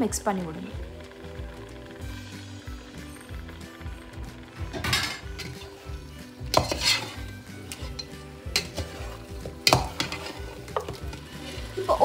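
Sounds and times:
oil sizzling: 0.0s - 12.0s
metal spoon scraping pot: 4.8s - 12.0s.

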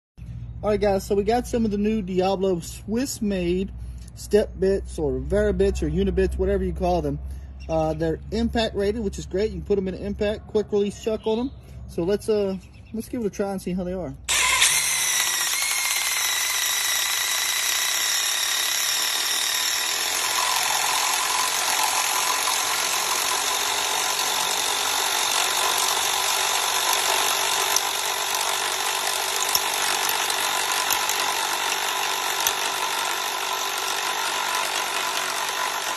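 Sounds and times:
impact driver drilling steel: 14.3s - 35.9s.

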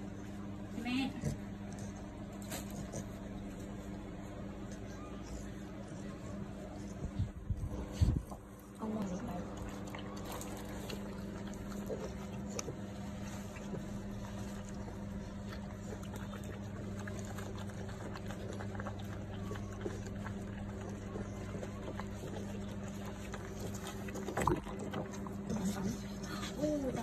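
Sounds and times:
low mechanical hum: 0.0s - 27.0s.

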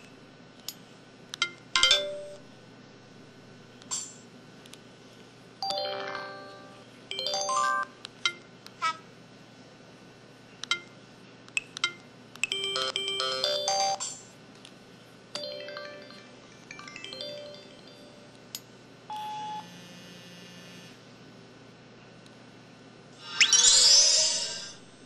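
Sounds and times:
falling chime tones: 15.4s - 18.3s, 23.3s - 24.7s
phone melodic jingle: 15.4s - 18.3s
phone vibrating buzz: 19.2s - 21.0s.

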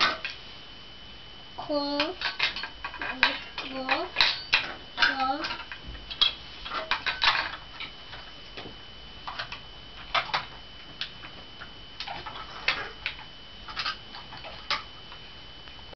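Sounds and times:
faint high-pitched whine: 0.0s - 15.9s
plastic toys clacking together: 2.0s - 7.9s, 12.0s - 14.9s.

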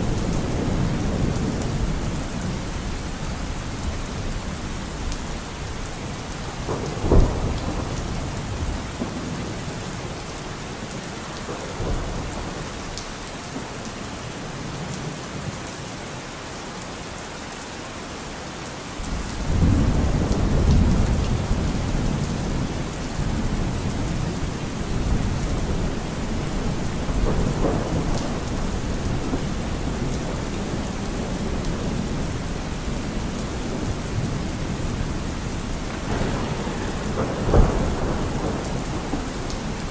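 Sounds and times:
thunder clap and rumble: 0.0s - 10.2s, 19.0s - 39.9s
steady rain: 0.0s - 39.9s.

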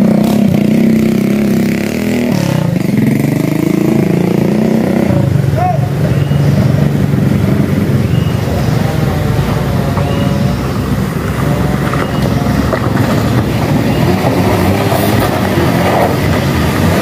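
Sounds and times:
van engine running: 5.1s - 17.0s
tyres rumbling on gravel: 5.4s - 17.0s.

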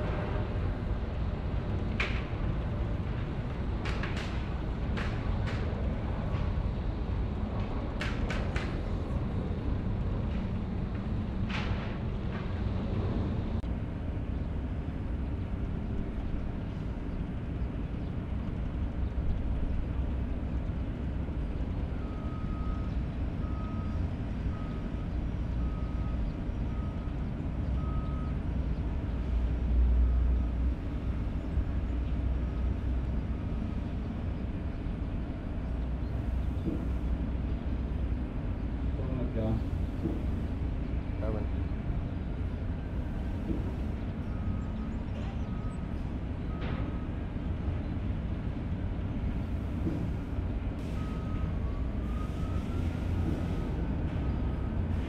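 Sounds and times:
jet engines rumbling: 0.0s - 22.3s, 30.6s - 55.0s
vehicle reversing alarm beeping: 21.8s - 28.5s, 43.0s - 47.3s, 49.4s - 55.0s.

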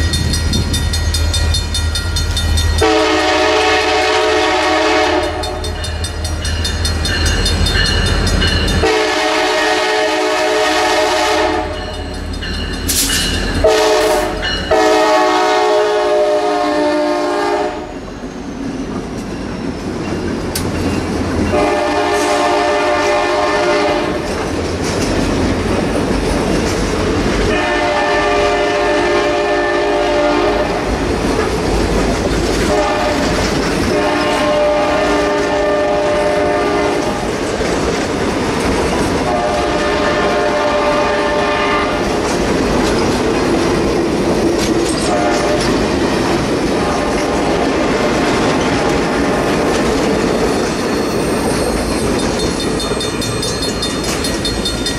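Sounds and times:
locomotive air horn blasts: 2.8s - 5.7s, 8.8s - 11.8s, 13.6s - 18.0s, 21.5s - 24.2s, 27.5s - 30.9s, 32.7s - 33.3s, 33.9s - 37.2s, 39.2s - 42.1s, 45.0s - 45.6s
train wheels clacking over rail joints: 18.8s - 27.9s, 30.6s - 54.9s.

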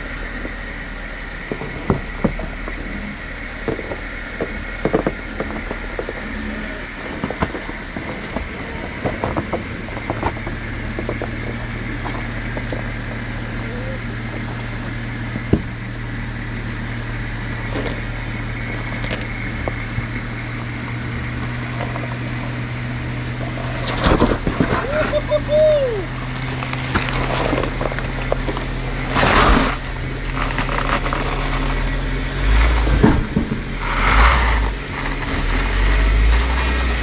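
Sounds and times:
car engine running low: 0.0s - 37.0s
tyres and suspension creaking on rock: 1.4s - 13.6s, 26.1s - 37.0s.

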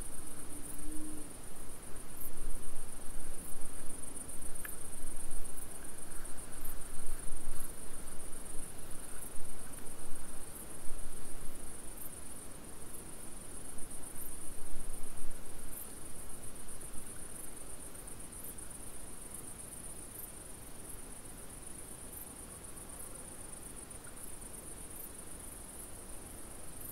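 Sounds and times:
crickets chirring: 0.0s - 26.9s.

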